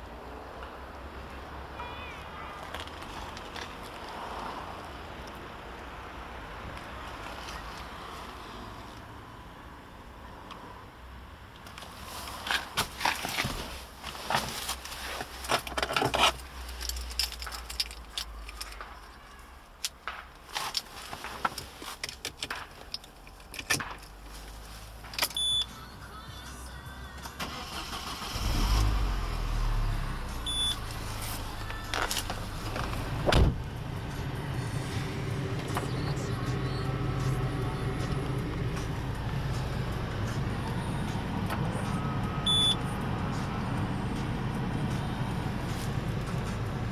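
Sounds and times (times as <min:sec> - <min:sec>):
handling clicks and knocks: 0:12.5 - 0:25.4
car engine starting and idling: 0:21.6 - 0:46.9
short high beeps: 0:25.4 - 0:25.7, 0:30.5 - 0:30.8, 0:42.3 - 0:42.8.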